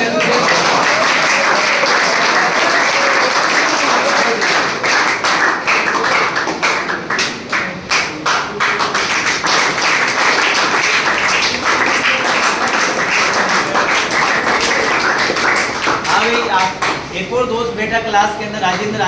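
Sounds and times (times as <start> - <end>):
crowd clapping: 0.0 - 17.1.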